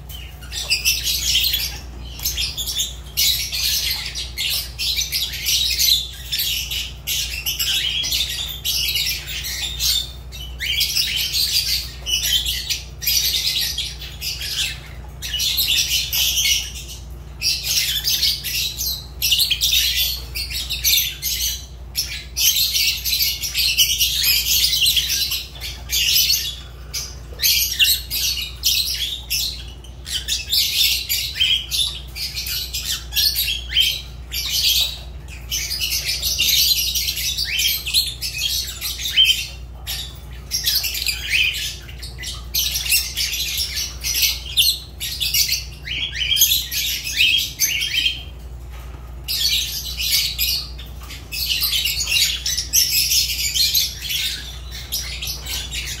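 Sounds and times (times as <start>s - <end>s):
lovebirds chirping and squawking: 0.0s - 56.0s.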